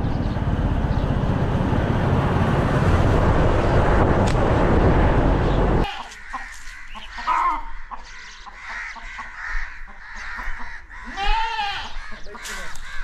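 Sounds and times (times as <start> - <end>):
crows cawing: 5.8 - 13.0.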